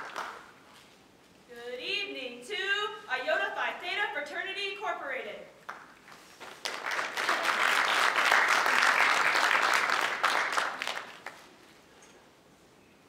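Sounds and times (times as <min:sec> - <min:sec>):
audience applauding: 0:00.0 - 0:00.4, 0:05.7 - 0:11.5.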